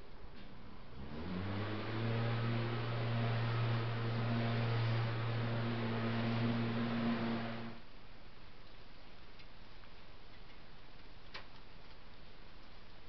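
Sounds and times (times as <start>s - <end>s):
engine humming: 0.0s - 7.9s.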